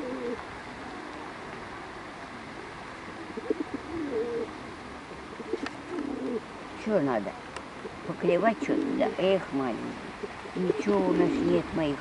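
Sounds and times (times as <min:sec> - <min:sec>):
pigeons cooing: 0:00.0 - 0:01.2, 0:02.5 - 0:06.6, 0:07.8 - 0:11.9
steady background hiss: 0:00.0 - 0:12.0.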